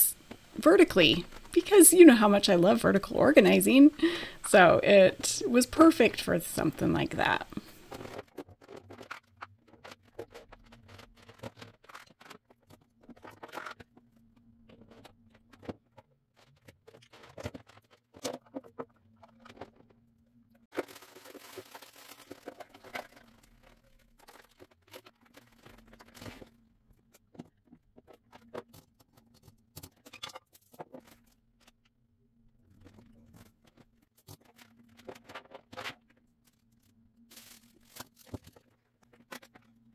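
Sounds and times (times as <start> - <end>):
faint steady hum: 0.0 - 8.2.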